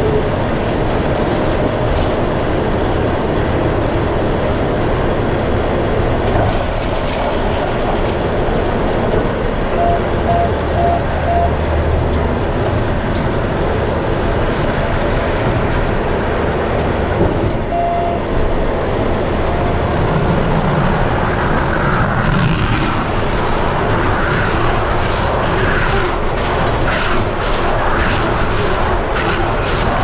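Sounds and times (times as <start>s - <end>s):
machinery clattering: 0.0s - 30.0s
tractor diesel engine running: 0.0s - 30.0s
short electronic beeps: 9.8s - 11.6s, 17.7s - 18.2s.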